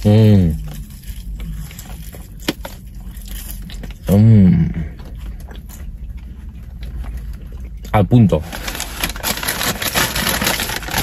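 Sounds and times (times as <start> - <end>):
low steady hum: 0.0 - 11.0
man chewing french fries: 0.0 - 11.0
man humming mmm: 4.1 - 5.0.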